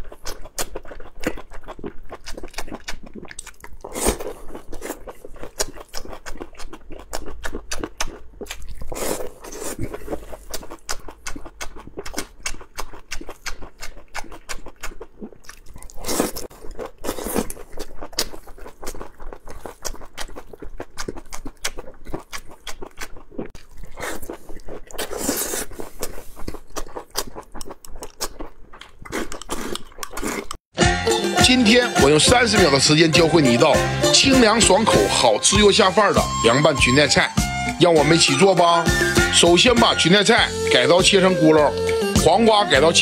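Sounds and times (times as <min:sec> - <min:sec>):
wet mouth clicks and crunches: 0:00.0 - 0:30.6
man chewing crunchy salad: 0:00.0 - 0:31.5.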